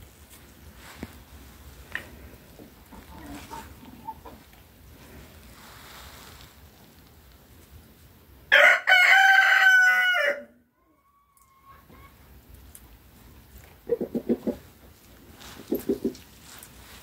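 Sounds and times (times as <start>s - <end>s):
young cockerel crowing: 8.5s - 11.8s.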